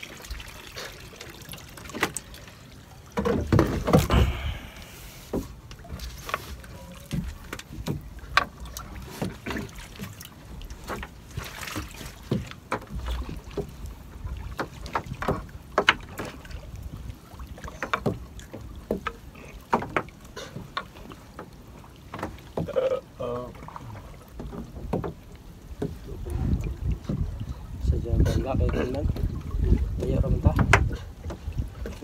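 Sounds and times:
net knocking against boat hull: 3.2 - 4.5, 24.4 - 25.2, 30.0 - 31.4
wind rumble on microphone: 25.7 - 32.0.

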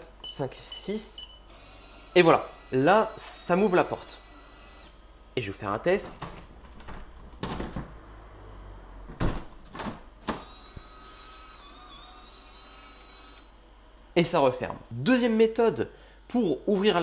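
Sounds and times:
small lock motor whirring: 1.4 - 5.0, 10.2 - 13.6.

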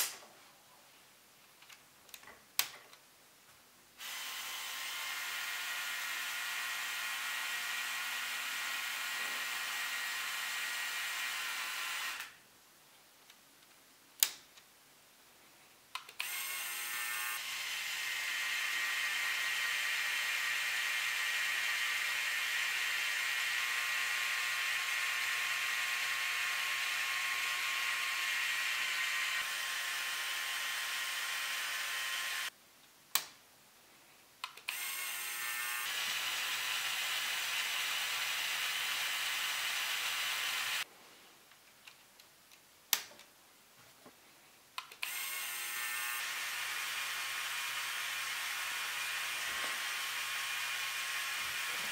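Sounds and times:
sharp click: 33.1 - 33.4.

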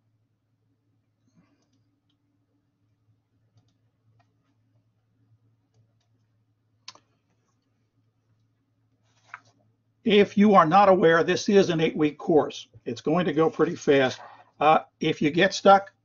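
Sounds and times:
faint steady hum: 0.0 - 16.0
computer clicks: 3.5 - 4.4.

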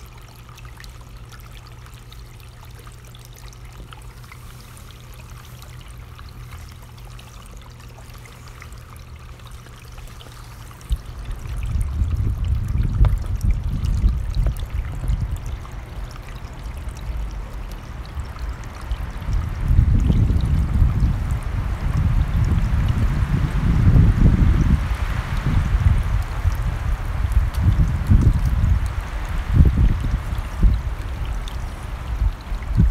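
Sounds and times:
wind buffeting microphone: 10.9 - 16.1, 17.2 - 32.9
stream rushing: 15.6 - 32.9.

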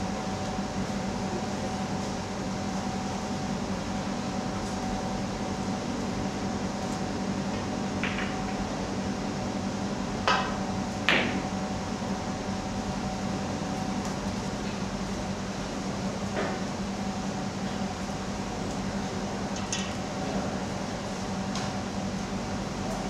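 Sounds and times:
ventilation hum: 0.0 - 23.0
snooker balls clicking: 8.0 - 8.6.

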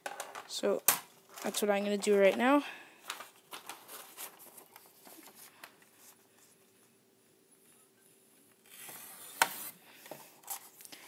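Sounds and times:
paper rustling and tapping: 3.1 - 5.8.

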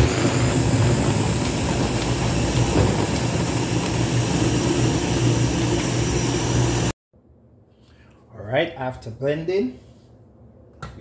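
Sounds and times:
blender running: 0.0 - 7.0.

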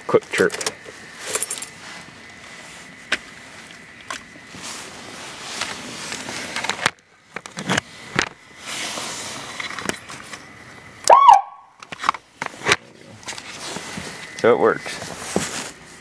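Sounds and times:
electronic siren chirp: 11.0 - 11.7.

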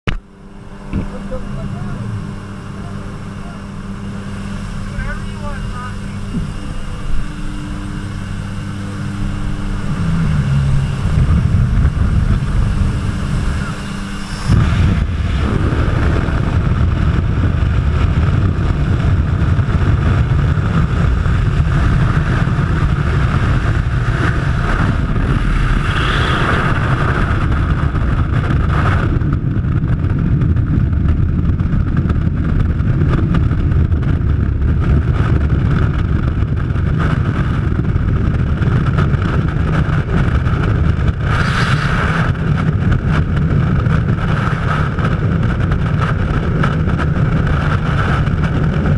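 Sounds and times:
aircraft engine drone: 0.1 - 48.9
freefall wind rushing: 0.4 - 48.9.

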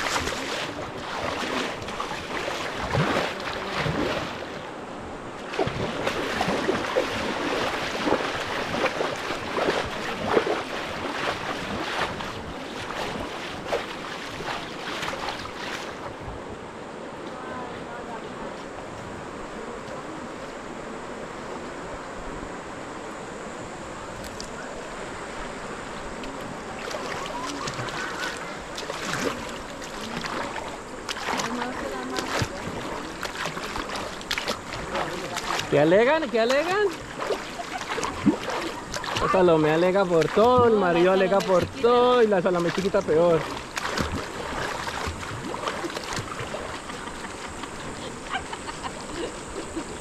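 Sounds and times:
water splashing: 0.0 - 20.4, 24.1 - 50.0
river water rushing: 0.0 - 50.0
people calling out: 27.0 - 28.7.

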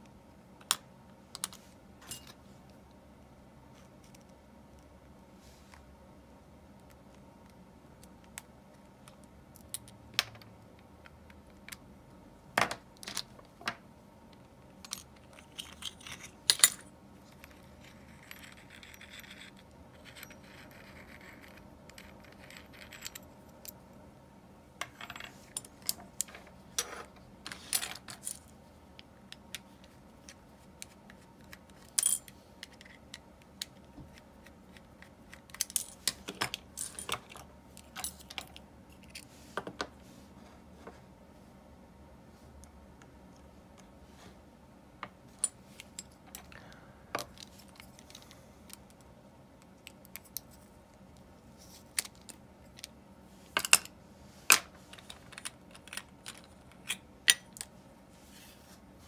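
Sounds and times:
soft rubbing hiss: 5.3 - 5.9, 58.1 - 59.0
small metal parts clinking: 14.8 - 23.8, 31.8 - 33.0.

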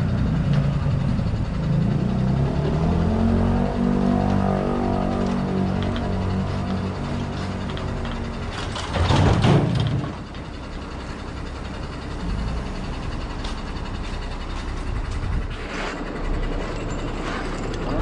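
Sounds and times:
truck engine running: 0.0 - 18.0
tiller landing with clatter: 7.6 - 10.4.

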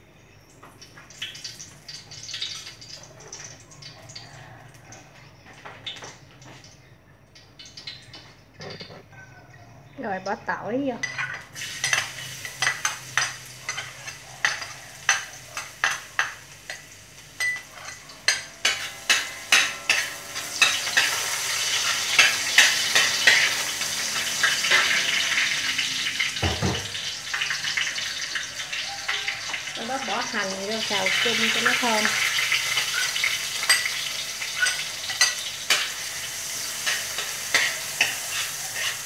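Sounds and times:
garlic sizzling in hot oil: 0.8 - 4.4, 7.4 - 8.2, 10.0 - 39.0
metal spatula scraping a wok: 17.4 - 26.3, 32.6 - 39.0.

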